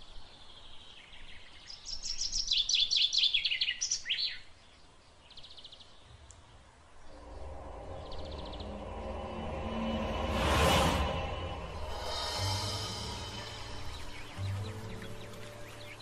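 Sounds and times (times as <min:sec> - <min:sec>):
bird singing high notes: 0:07.0 - 0:16.0.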